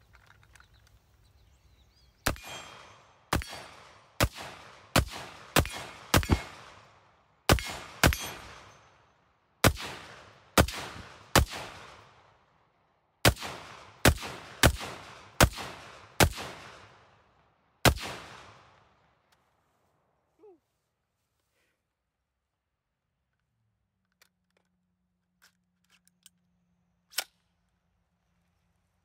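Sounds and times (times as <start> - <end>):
rifle shots echoing: 2.2 - 8.9, 9.6 - 12.4, 13.2 - 17.2, 17.8 - 18.8.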